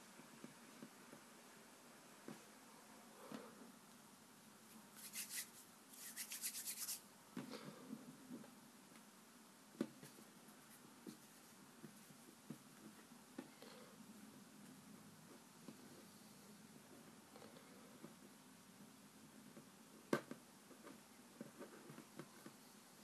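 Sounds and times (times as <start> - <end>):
hands rubbing and brushing: 4.7 - 7.1
soft taps and clicks of play dough: 9.7 - 13.6, 19.4 - 22.6.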